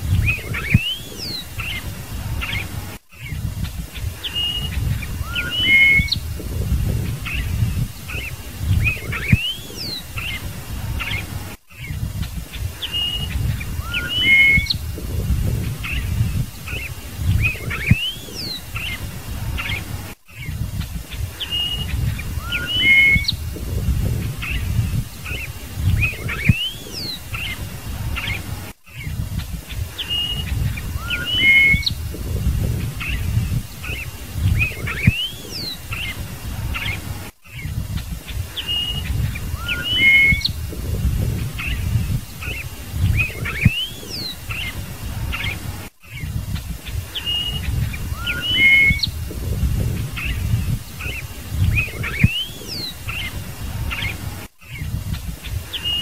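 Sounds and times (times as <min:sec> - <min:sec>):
bird singing whistled notes: 0:00.0 - 0:46.4, 0:47.1 - 0:55.0, 0:55.7 - 0:56.0
low rumble: 0:14.8 - 0:16.6, 0:23.3 - 0:25.1, 0:31.9 - 0:33.7, 0:40.5 - 0:42.4, 0:49.1 - 0:50.9.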